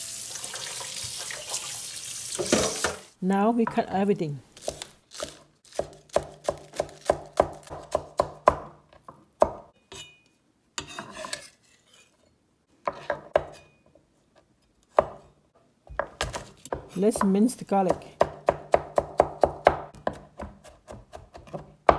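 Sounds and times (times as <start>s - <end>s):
knife scraping cutting board: 10.8s - 12.2s
cleaver chopping on cutting board: 17.9s - 21.9s.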